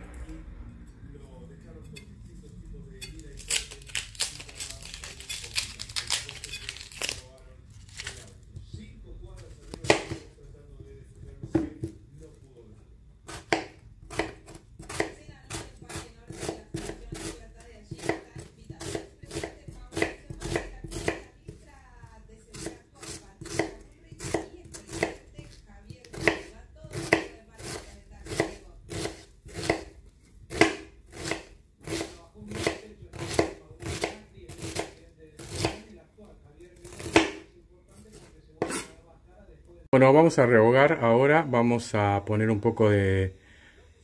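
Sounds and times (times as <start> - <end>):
knife chopping on cutting board: 9.6 - 10.3, 11.1 - 12.0, 13.3 - 35.9, 36.8 - 39.0.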